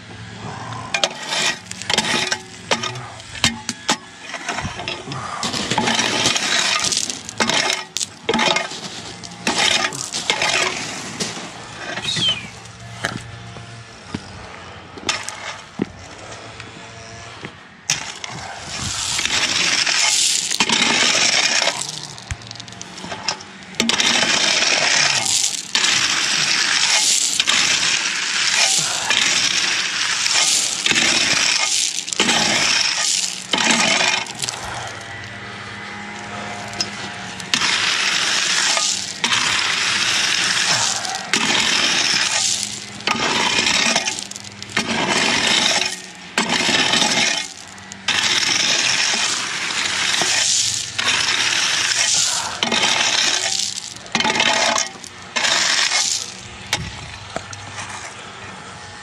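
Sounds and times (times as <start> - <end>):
gravel raked with steel rake: 0.0 - 59.0.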